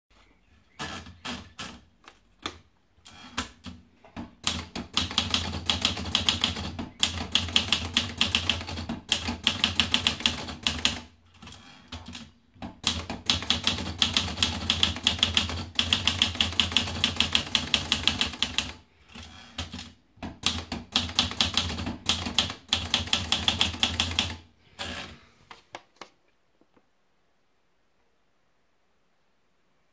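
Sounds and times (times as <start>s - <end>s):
rapid typewriter keystrokes: 3.3s - 25.1s.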